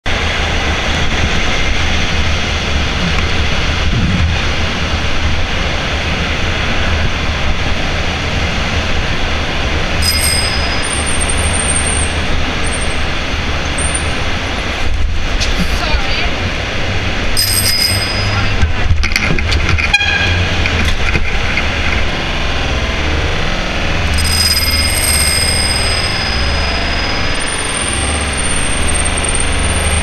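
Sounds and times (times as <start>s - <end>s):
rushing wind: 0.0s - 30.0s
tunnel traffic noise: 0.0s - 30.0s
bicycle bell ringing: 10.0s - 14.3s, 17.3s - 18.7s, 24.0s - 30.0s.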